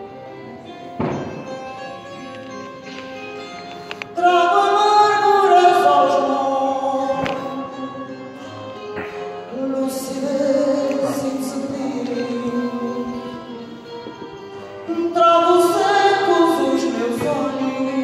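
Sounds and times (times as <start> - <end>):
plucked string accompaniment: 0.0 - 18.0
person singing long notes: 3.8 - 18.0.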